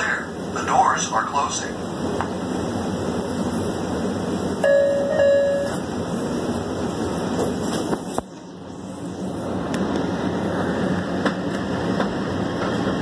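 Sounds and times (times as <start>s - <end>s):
subway car hum: 0.0s - 13.0s
two-note door chime: 4.6s - 5.8s.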